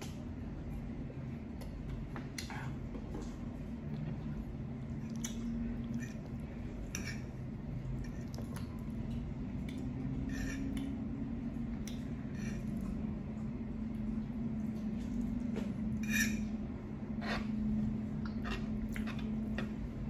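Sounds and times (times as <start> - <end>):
steady low hum: 0.0 - 20.0
metal fork clinking and scraping: 16.0 - 16.5.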